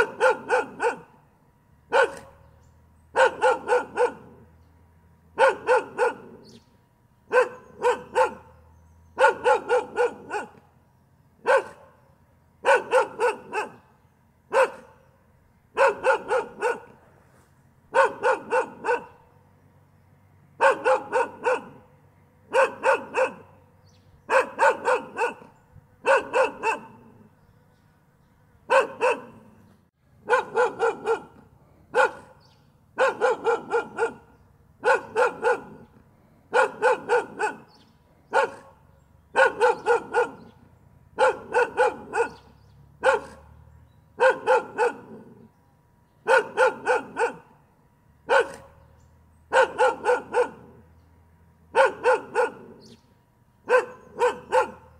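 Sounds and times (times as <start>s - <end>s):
dog barking: 0.0s - 1.2s, 1.9s - 2.5s, 3.1s - 4.5s, 5.4s - 6.6s, 7.3s - 8.6s, 9.2s - 10.6s, 11.4s - 12.0s, 12.6s - 13.9s, 14.5s - 15.0s, 15.7s - 17.0s, 17.9s - 19.2s, 20.6s - 21.9s, 22.5s - 23.6s, 24.2s - 27.3s, 28.7s - 29.6s, 30.2s - 35.9s, 36.5s - 40.6s, 41.2s - 43.6s, 44.2s - 45.5s, 46.2s - 47.6s, 48.3s - 48.8s, 49.5s - 50.8s, 51.7s - 53.0s, 53.6s - 54.9s.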